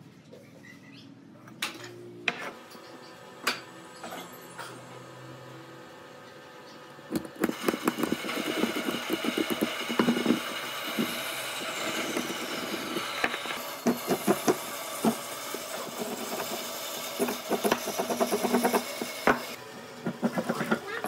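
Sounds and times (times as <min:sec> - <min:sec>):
workshop machine noise: 0:00.0 - 0:21.0
hand tool scraping wood: 0:07.4 - 0:20.8.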